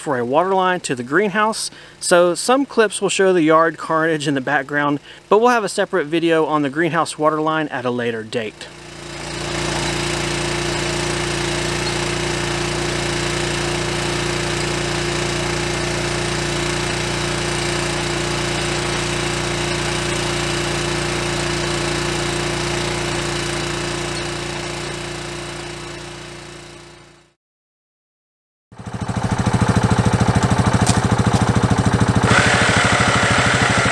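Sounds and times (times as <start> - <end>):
small gasoline engine running: 8.6 - 27.4, 28.8 - 33.9
digging chain cutting soil: 8.9 - 25.2, 30.7 - 33.9.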